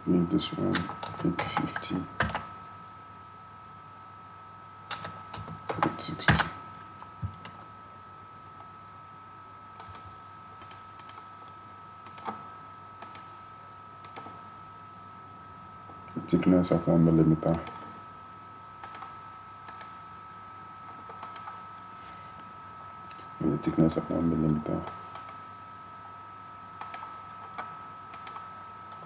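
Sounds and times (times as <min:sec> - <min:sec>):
mouse clicks: 0:09.8 - 0:11.2, 0:12.0 - 0:12.4, 0:13.0 - 0:13.3, 0:14.0 - 0:14.4, 0:18.8 - 0:19.1, 0:19.7 - 0:20.0, 0:21.1 - 0:21.6, 0:26.8 - 0:27.1, 0:28.1 - 0:28.4.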